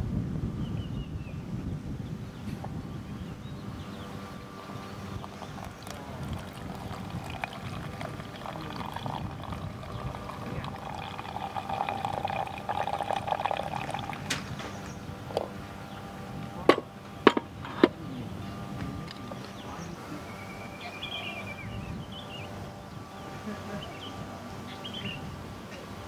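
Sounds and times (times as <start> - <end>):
liquid pouring: 5.1 - 14.6.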